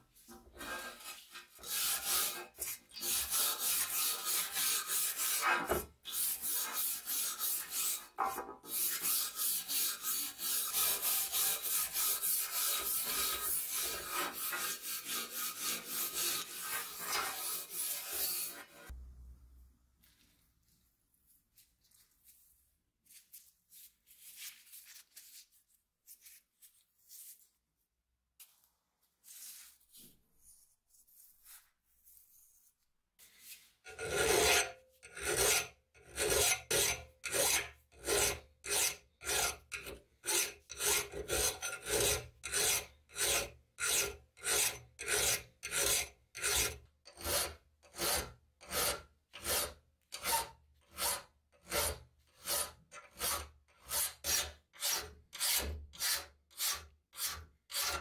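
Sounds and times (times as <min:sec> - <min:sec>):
file rasping on steel blade: 0:00.6 - 0:18.9, 0:33.9 - 0:58.0.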